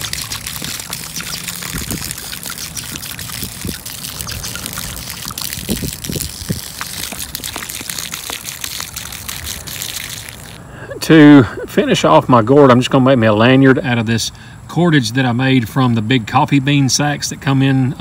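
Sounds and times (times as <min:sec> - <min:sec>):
water pouring onto grass: 0:00.0 - 0:10.7.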